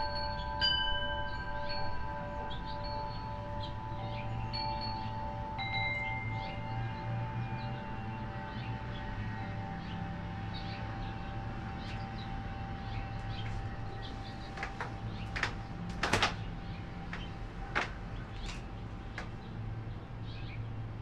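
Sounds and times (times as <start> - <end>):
wind chime ringing: 0.0 - 18.8
small birds chirping: 1.2 - 21.0
sharp clicks or knocks: 14.6 - 16.5, 17.1 - 19.4.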